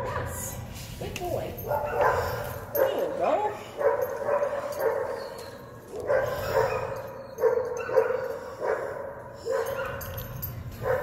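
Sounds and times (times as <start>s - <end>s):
dog barking: 1.7s - 3.2s, 3.8s - 5.3s, 5.9s - 10.1s.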